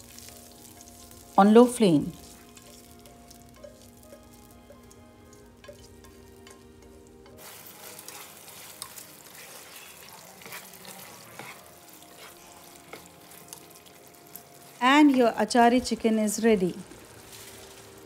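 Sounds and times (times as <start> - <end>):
chicken sizzling in hot oil: 0.0 - 18.0
soft background music: 0.0 - 18.0
spatula scraping and tapping pan: 2.1 - 16.0.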